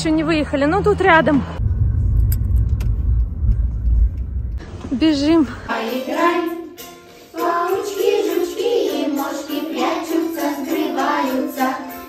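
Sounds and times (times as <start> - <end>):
group singing children's song: 5.5 - 12.0.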